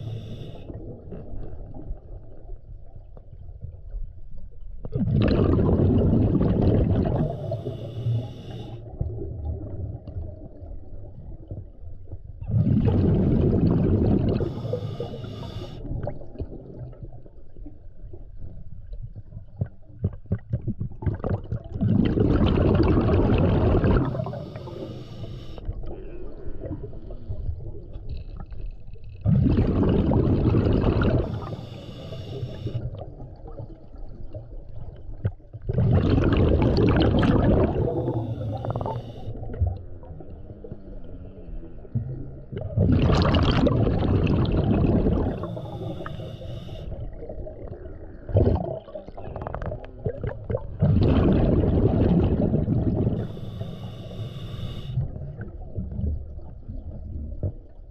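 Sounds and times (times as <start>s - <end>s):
regulator inhalation hiss: 0.0s - 0.7s, 7.3s - 8.8s, 14.4s - 15.8s, 24.0s - 25.6s, 31.2s - 32.9s, 37.8s - 39.3s, 45.3s - 46.9s, 53.2s - 55.0s
exhaled bubbles gushing: 4.8s - 7.8s, 8.9s - 24.9s, 25.7s - 28.6s, 29.2s - 57.9s.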